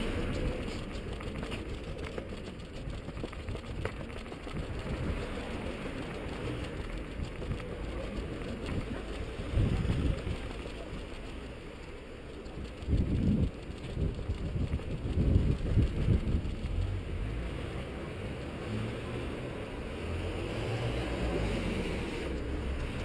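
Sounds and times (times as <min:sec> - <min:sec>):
footsteps on pavement: 0:00.0 - 0:11.2
street traffic: 0:00.0 - 0:23.0
wind rumble on microphone: 0:00.0 - 0:23.0.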